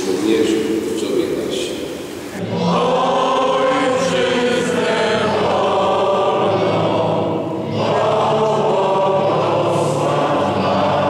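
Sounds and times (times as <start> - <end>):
group of voices singing: 2.4 - 11.0.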